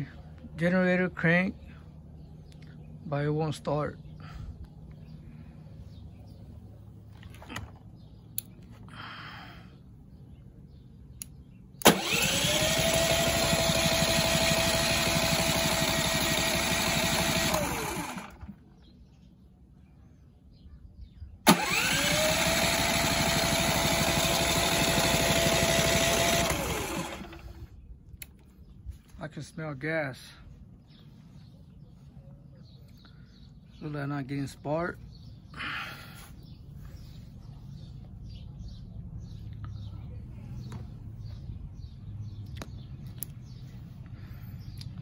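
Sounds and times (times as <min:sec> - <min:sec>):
sharp starter click: 0:11.2 - 0:18.5, 0:21.5 - 0:28.3
starter motor cranking engine: 0:11.8 - 0:18.6, 0:21.4 - 0:27.8.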